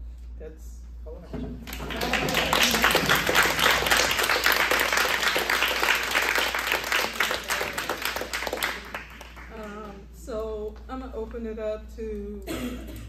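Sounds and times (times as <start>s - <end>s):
people applauding: 1.6s - 10.0s.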